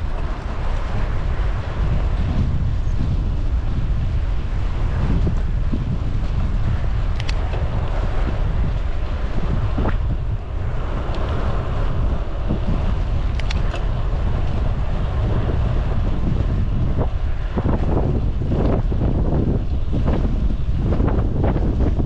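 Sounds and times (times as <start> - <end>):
wind buffeting microphone: 0.0 - 22.0
brief clicks: 7.2 - 7.6, 13.3 - 13.8.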